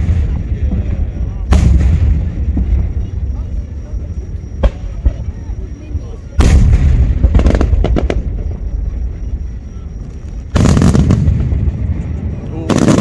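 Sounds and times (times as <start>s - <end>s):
firework pops and crackles: 0.0s - 3.0s, 6.4s - 8.4s, 10.5s - 12.0s, 12.7s - 13.0s
firework booms: 0.0s - 3.8s, 6.3s - 9.2s, 10.3s - 13.0s.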